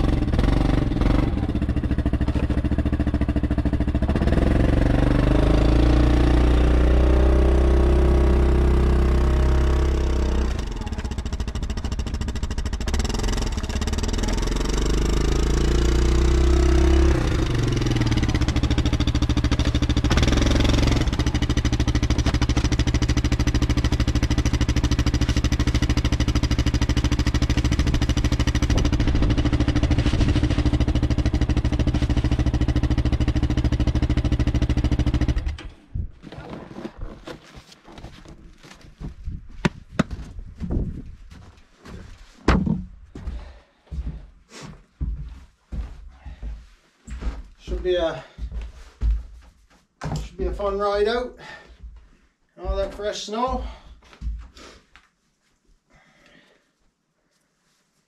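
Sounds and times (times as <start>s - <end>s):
atv engine revving: 0.0s - 35.9s.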